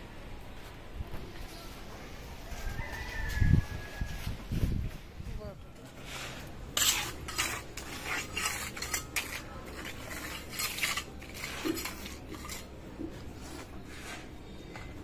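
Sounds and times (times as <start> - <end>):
trowel scraping wet concrete: 6.0 - 14.5.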